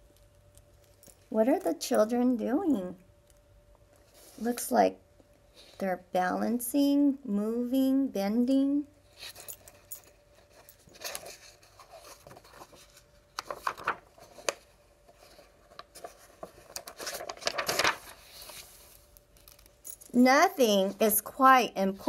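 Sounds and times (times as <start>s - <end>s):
book pages rustling: 10.4s - 19.7s.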